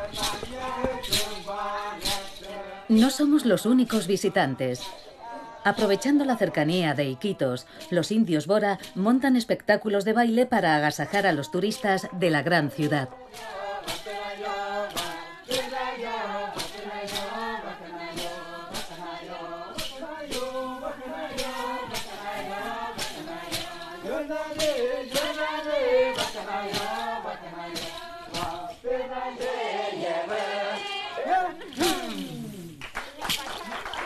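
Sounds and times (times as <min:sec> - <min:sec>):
group singing a chant: 0:00.0 - 0:09.2, 0:10.6 - 0:32.9
thumped beat: 0:12.8 - 0:32.8.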